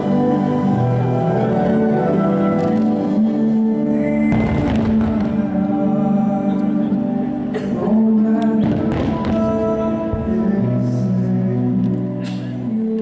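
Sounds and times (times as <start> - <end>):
music with sustained chords: 0.0 - 13.0.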